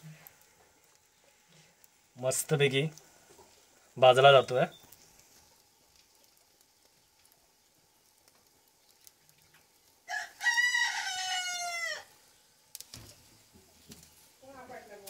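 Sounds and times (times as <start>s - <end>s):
rooster crowing: 10.0s - 12.1s.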